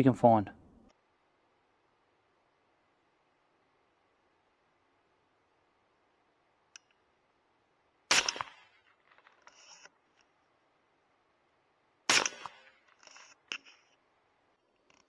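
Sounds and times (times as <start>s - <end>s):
suppressed rifle shots: 8.1s - 9.8s, 12.1s - 13.8s
rifle bolt clicks and rattles: 12.2s - 13.9s.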